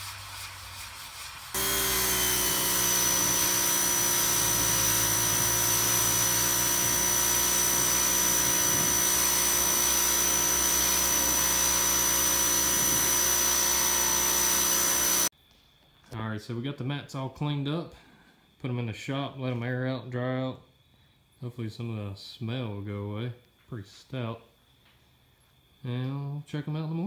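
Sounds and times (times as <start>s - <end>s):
water jet hissing: 0.0s - 15.3s
pressure washer running: 1.6s - 15.3s.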